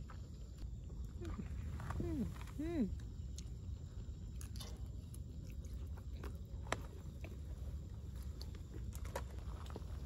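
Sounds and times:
person chewing crispy food: 3.0 - 10.0.

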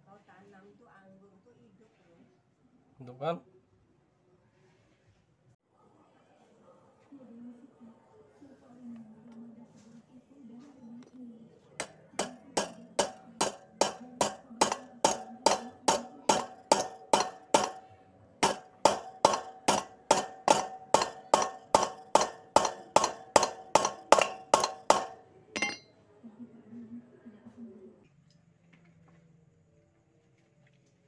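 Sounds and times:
hammer striking with metallic ring: 11.8 - 25.9.

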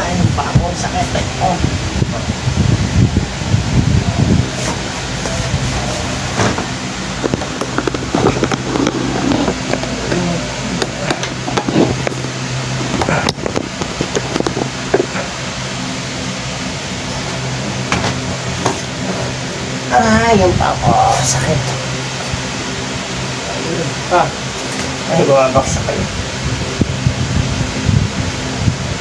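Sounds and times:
electric fan humming: 0.0 - 29.0.

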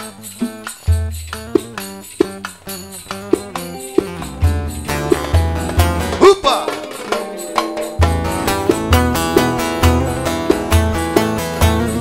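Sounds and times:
jingling percussion: 0.0 - 12.0
plucked lute runs: 1.4 - 12.0
electronic keyboard: 3.2 - 12.0.

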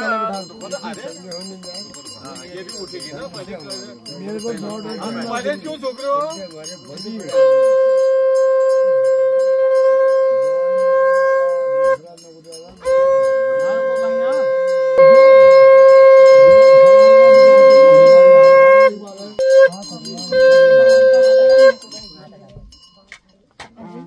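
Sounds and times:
conch shell blowing: 7.3 - 12.1, 12.8 - 21.9.

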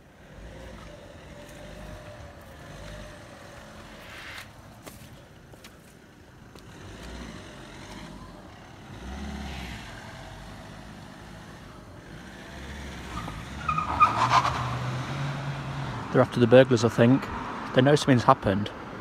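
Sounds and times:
car engine: 0.0 - 19.0
tyres on the road: 0.0 - 19.0.

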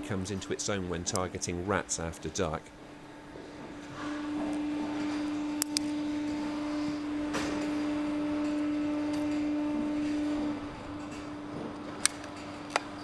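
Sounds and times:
steady humming tone: 0.0 - 13.0.

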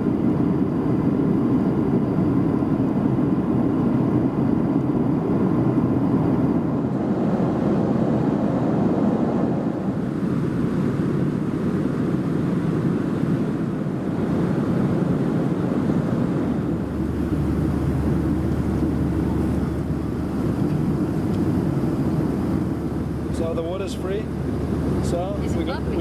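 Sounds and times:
airplane cabin engine noise: 0.0 - 26.0
low hum: 14.8 - 26.0.

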